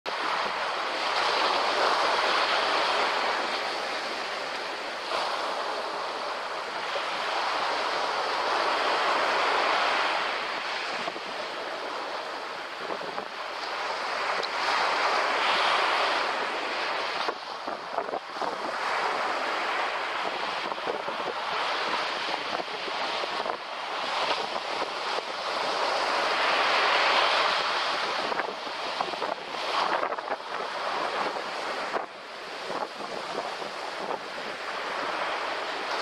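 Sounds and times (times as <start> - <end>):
small waves breaking on beach: 0.1 - 36.0.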